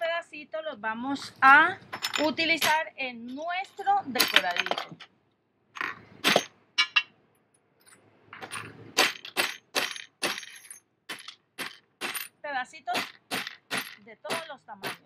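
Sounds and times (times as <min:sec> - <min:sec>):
hammer breaking ceramic: 0:09.0 - 0:12.3, 0:12.9 - 0:15.0.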